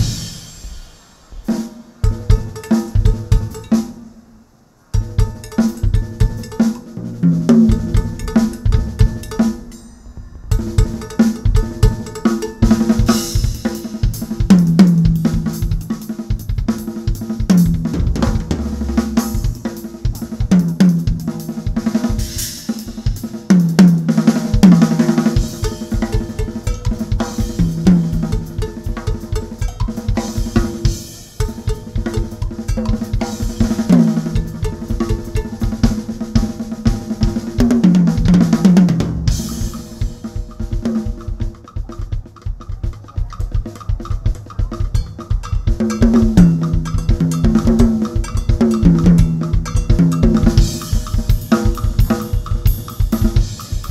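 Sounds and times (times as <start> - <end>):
drum kit solo: 0.0 - 53.9.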